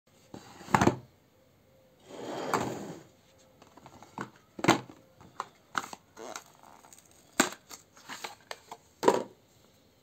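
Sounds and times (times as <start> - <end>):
sliding scrape: 2.0 - 3.1.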